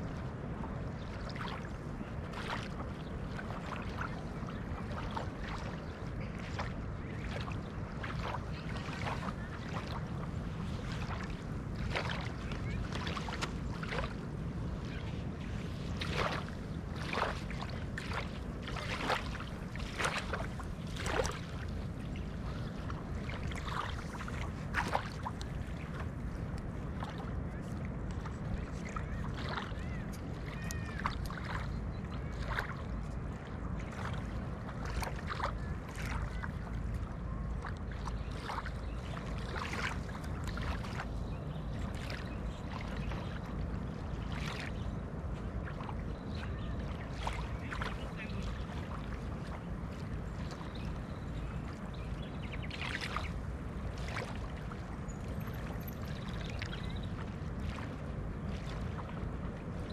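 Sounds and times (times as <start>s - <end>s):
steady low rumble: 0.0s - 59.9s
wavelets splashing on shore: 0.0s - 59.9s.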